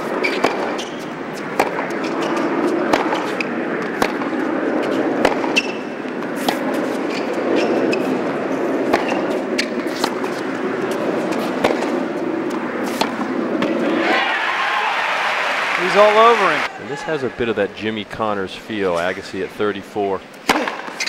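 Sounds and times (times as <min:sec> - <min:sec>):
racket striking ball: 0:00.0 - 0:08.2, 0:08.8 - 0:14.0, 0:20.4 - 0:21.0
stadium noise hum: 0:00.0 - 0:21.0
shoe squeaks: 0:00.1 - 0:01.1, 0:01.9 - 0:03.6, 0:04.9 - 0:05.9, 0:07.0 - 0:08.2
ball bounces: 0:00.2 - 0:04.4, 0:05.2 - 0:07.2, 0:08.9 - 0:10.5.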